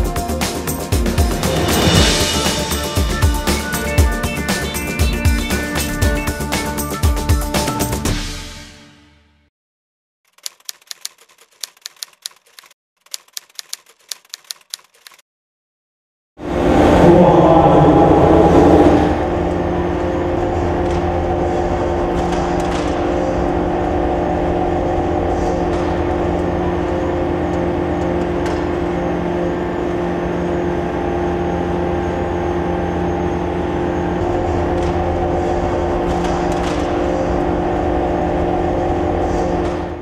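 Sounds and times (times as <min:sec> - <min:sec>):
machinery humming drone: 0:00.0 - 0:08.1, 0:16.4 - 0:40.0.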